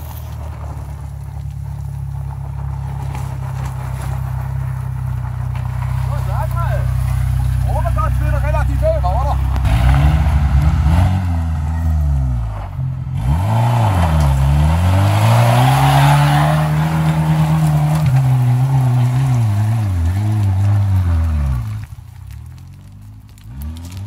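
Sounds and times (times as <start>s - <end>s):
car engine revving: 0.0s - 24.0s
tyres rushing over dirt: 0.0s - 24.0s.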